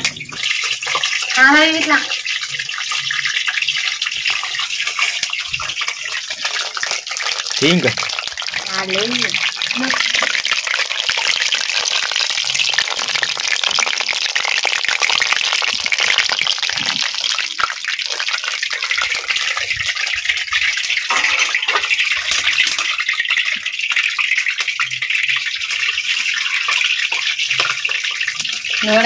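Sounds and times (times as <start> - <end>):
oil sizzling while deep-frying: 0.0 - 29.0.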